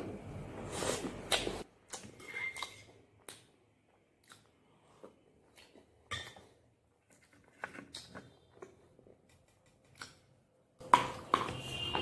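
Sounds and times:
person chewing wet clay: 0:01.3 - 0:10.4.

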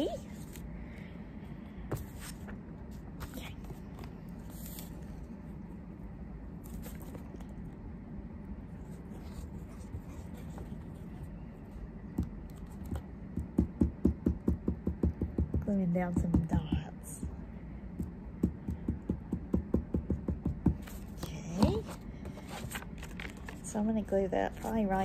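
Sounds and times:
low room hum: 0:00.0 - 0:25.0
craft paper rustling: 0:20.8 - 0:25.0.

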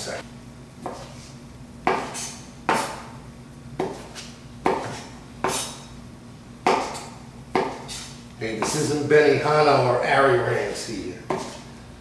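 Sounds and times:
knife chopping on cutting board: 0:00.8 - 0:01.1, 0:01.8 - 0:03.1, 0:03.8 - 0:05.8, 0:06.6 - 0:08.9, 0:11.3 - 0:11.6.

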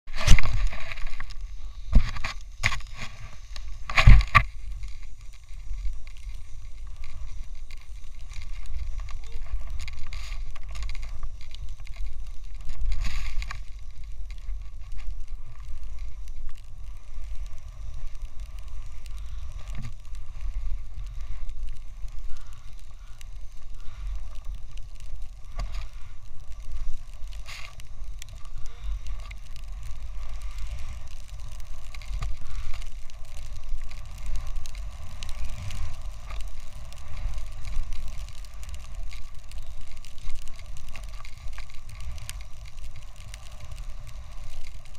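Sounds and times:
snowboard scrapes: 0:00.1 - 0:16.2
snowboard hissing through snow: 0:00.1 - 0:44.9.

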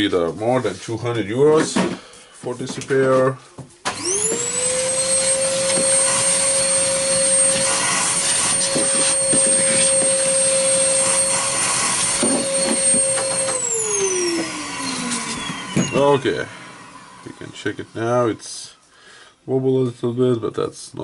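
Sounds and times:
vacuum cleaner whining: 0:03.8 - 0:18.8.

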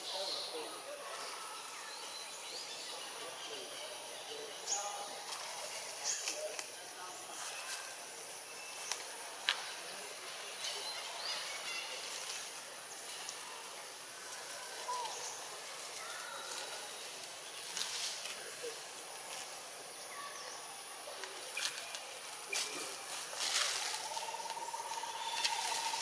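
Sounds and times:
high insect drone: 0:11.6 - 0:26.0.

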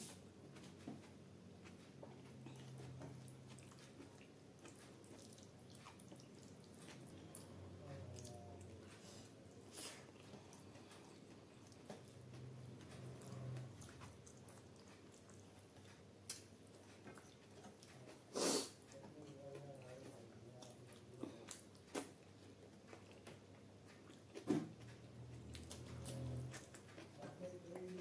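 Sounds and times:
chewing and wet mouth noises: 0:00.5 - 0:28.0.

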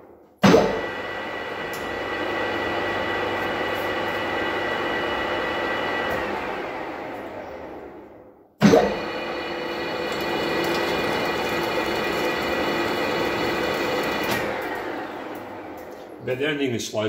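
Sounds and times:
metal lathe running: 0:09.0 - 0:16.1.

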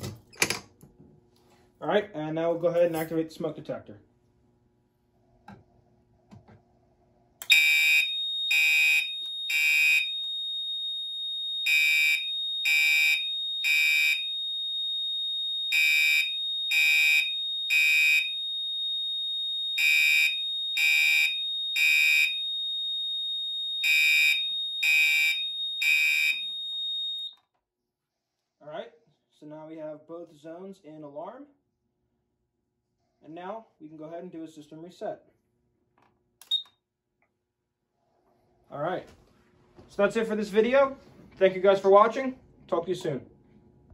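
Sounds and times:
fire alarm horn blasts: 0:07.4 - 0:27.4.

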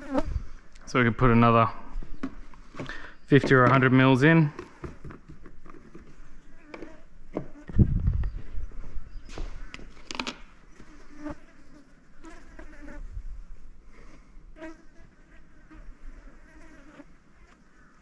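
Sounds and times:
flies buzzing: 0:00.0 - 0:00.7, 0:06.4 - 0:07.8, 0:09.6 - 0:13.2, 0:14.6 - 0:18.0.

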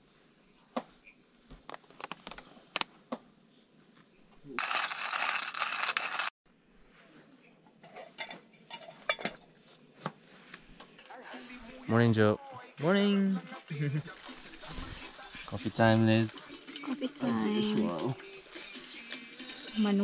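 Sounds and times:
cookware and utensils clinking: 0:07.8 - 0:09.5.

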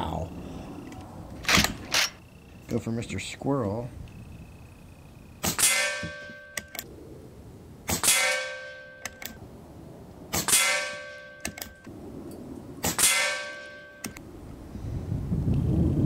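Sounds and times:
air rifle shot with metallic ringing: 0:05.4 - 0:06.7, 0:07.9 - 0:09.4, 0:10.3 - 0:11.8, 0:12.8 - 0:14.2.

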